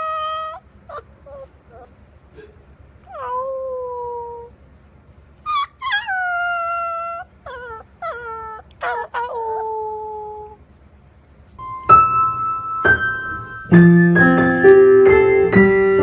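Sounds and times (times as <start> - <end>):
puppy howling: 0.0 - 2.0, 3.0 - 4.6, 5.4 - 10.6.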